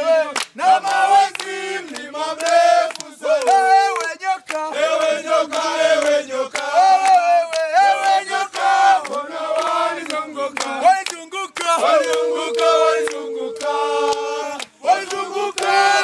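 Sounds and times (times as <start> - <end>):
men singing in chorus: 0.0 - 16.0
hand claps: 0.2 - 16.0.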